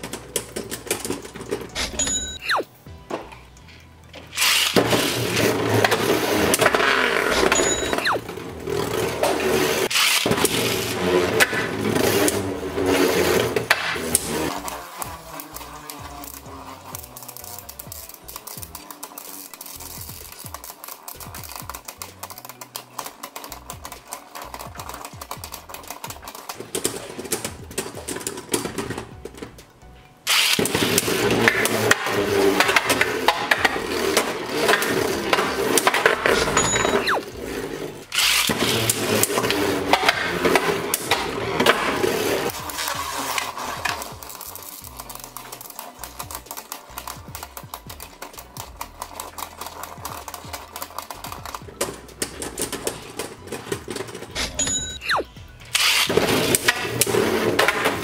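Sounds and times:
background music: 0:00.0 - 0:58.0
spinning tops clattering: 0:00.0 - 0:58.0.

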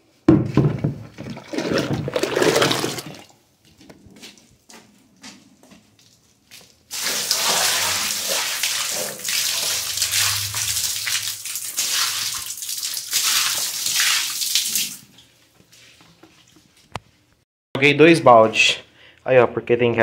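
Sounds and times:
water gushing onto tiled floor: 0:01.4 - 0:03.2, 0:06.9 - 0:15.2.

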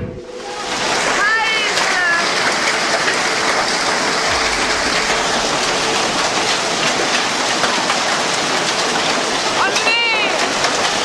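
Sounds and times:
low rumble: 0:00.0 - 0:01.2, 0:04.2 - 0:07.2
hail and rain pelting down: 0:00.4 - 0:11.0.

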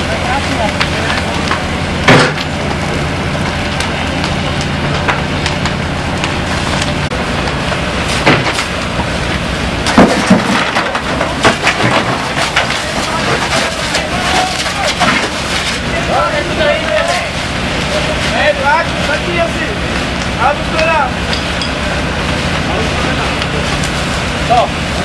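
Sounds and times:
burning wood crackling: 0:00.0 - 0:25.0
steady engine hum: 0:00.0 - 0:25.0
wood cracking and snapping: 0:00.6 - 0:02.8, 0:03.4 - 0:18.0.

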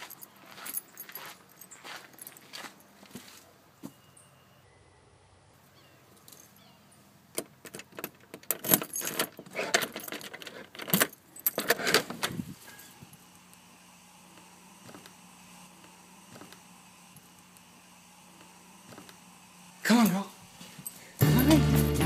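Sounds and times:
key turning in lock: 0:07.4 - 0:12.0
keys jangling on key ring: 0:07.8 - 0:11.7.

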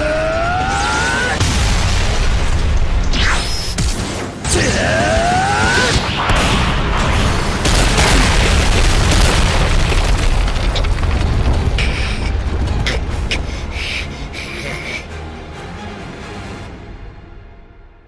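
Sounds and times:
rumbling explosion blast: 0:01.4 - 0:03.1, 0:06.2 - 0:12.9.

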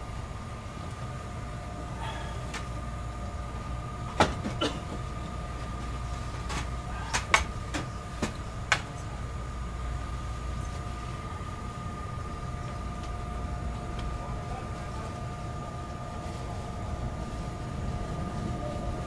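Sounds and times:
train car rumble and hum: 0:00.0 - 0:19.0.

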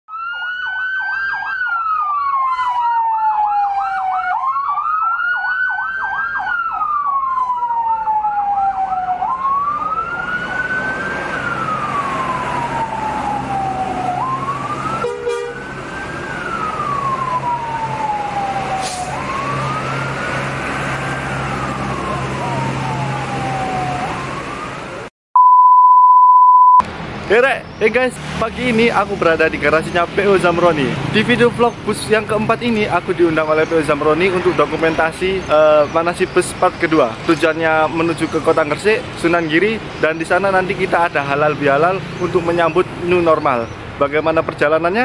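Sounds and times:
fast warbling siren: 0:00.1 - 0:24.9
siren wailing: 0:00.1 - 0:25.1
traffic noise: 0:00.1 - 0:25.1, 0:26.8 - 0:45.0
bus engines: 0:00.4 - 0:25.1, 0:26.8 - 0:45.0.

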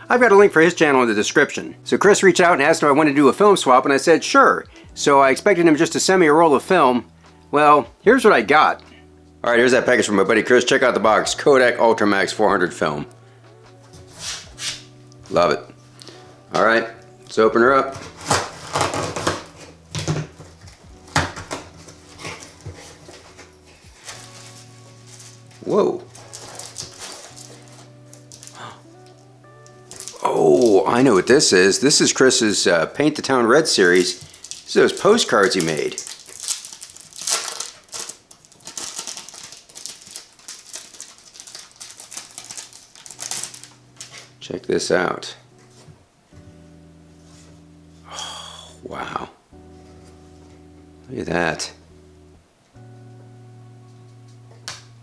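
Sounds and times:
plastic wrap rustling: 0:17.8 - 0:28.8, 0:29.8 - 0:31.5, 0:33.6 - 0:44.3
plastic and paper crinkling: 0:17.9 - 0:29.2, 0:29.8 - 0:31.2, 0:33.6 - 0:44.3
cardboard box tearing: 0:18.0 - 0:19.7.

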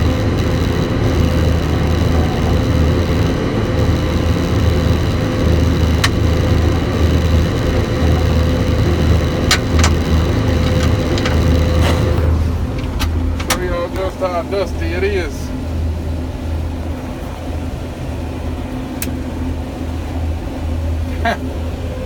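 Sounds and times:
combine engine drone: 0:00.0 - 0:22.0
high-pitched whine: 0:00.0 - 0:22.0
sharp clicks: 0:00.2 - 0:12.2.

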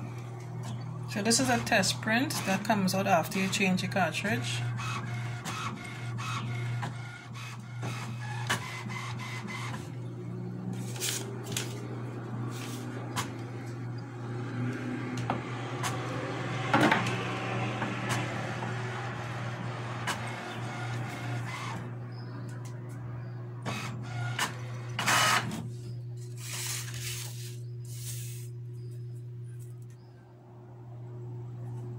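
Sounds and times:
printer motor hum: 0:00.0 - 0:31.9
printer clicks: 0:17.8 - 0:18.8.

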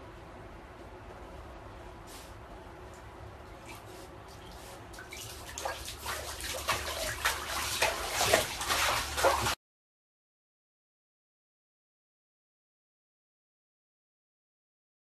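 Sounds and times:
bathtub water sloshing and splashing: 0:03.6 - 0:09.6.

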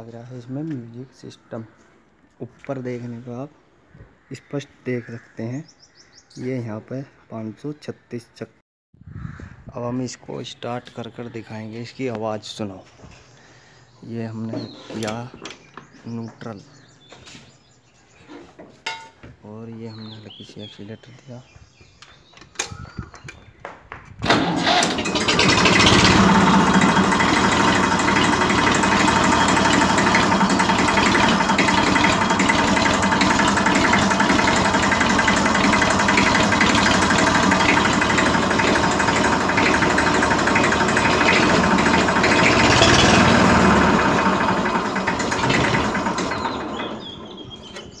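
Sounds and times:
tractor diesel engine starting: 0:24.2 - 0:48.0.

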